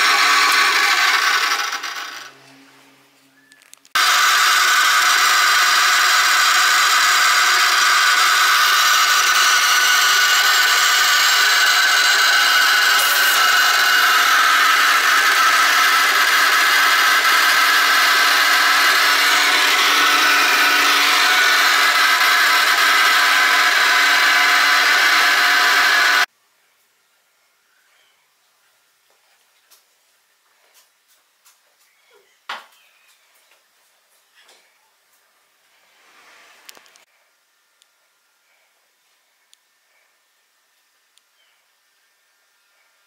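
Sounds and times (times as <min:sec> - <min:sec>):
machine high-pitched whir: 0:00.0 - 0:02.4, 0:04.0 - 0:26.3.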